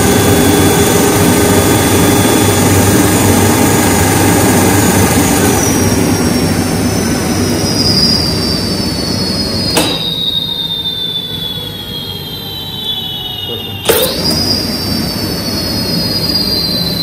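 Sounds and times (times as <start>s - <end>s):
sharp click: 9.7s - 10.2s, 13.8s - 14.2s.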